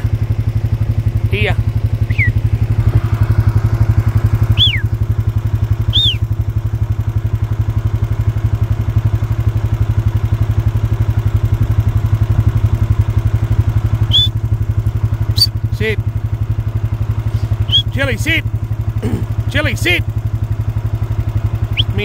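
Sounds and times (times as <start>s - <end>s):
vehicle engine running: 0.0s - 22.0s
short high chirps: 2.1s - 2.4s, 4.5s - 4.9s, 5.9s - 6.3s, 14.1s - 14.4s, 15.3s - 15.6s, 21.7s - 22.0s.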